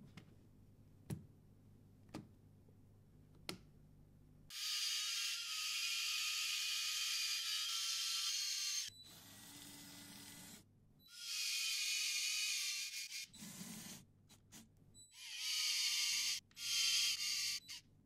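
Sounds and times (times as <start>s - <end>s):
toy car electric motor whining: 9.5s - 14.0s, 15.1s - 17.8s.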